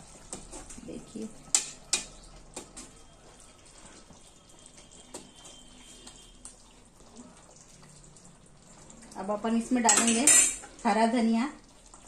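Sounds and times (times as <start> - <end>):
ladle stirring thick gravy: 0.0 - 12.0
ladle clicking against pan: 1.5 - 2.9, 9.8 - 10.7.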